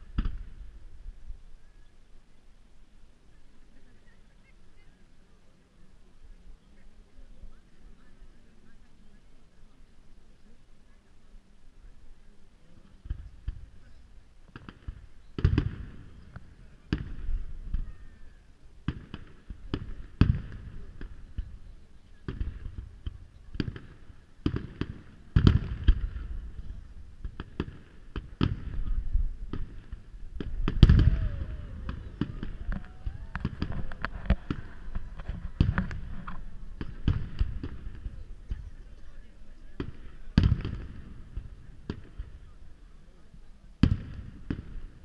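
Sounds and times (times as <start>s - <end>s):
fireworks launching and bursting: 0.0s - 0.8s, 14.5s - 18.2s, 18.8s - 42.6s, 43.8s - 45.0s.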